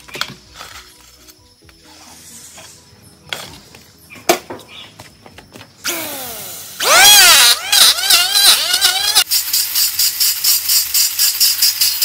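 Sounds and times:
electric hand planer cutting wood: 5.9 - 9.2.

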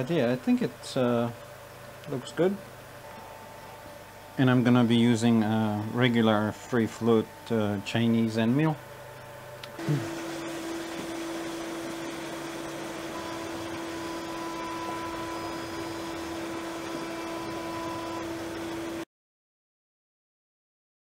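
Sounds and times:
faint high whine: 2.0 - 19.0
coolant spraying hiss: 9.8 - 19.0
milling spindle tone: 9.8 - 19.0.

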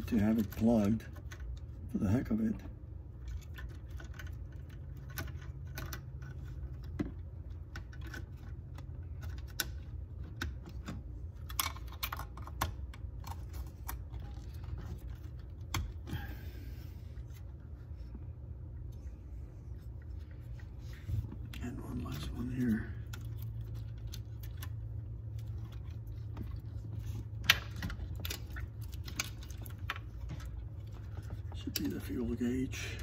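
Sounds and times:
steady low hum: 0.0 - 33.0
plastic clicks and rattles of connectors: 3.2 - 16.2, 23.0 - 32.1.

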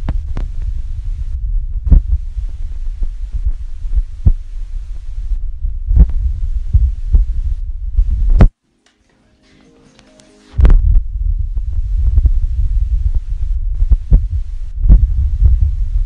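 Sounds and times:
phone microphone handling rumble: 0.0 - 8.5, 10.6 - 16.0.

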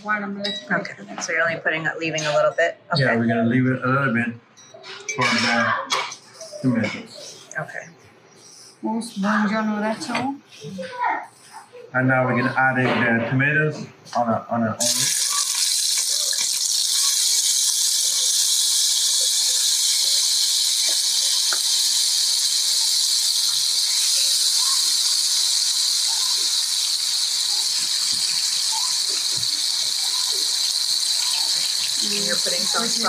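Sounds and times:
tomatoes sizzling in hot oil: 14.8 - 33.0.

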